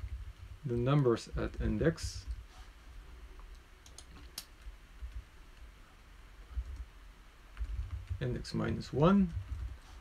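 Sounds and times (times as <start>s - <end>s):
low steady hum: 0.0s - 10.0s
computer keys clicking: 3.4s - 5.7s.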